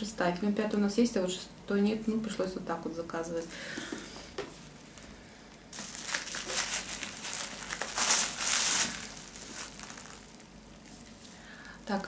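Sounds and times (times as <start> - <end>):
packaging crinkling: 5.7 - 11.2.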